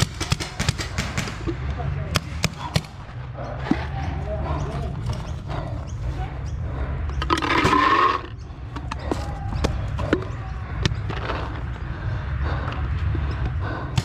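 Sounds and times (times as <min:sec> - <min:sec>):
paintball markers firing: 0:00.0 - 0:03.0
steady low rumble: 0:00.0 - 0:14.0.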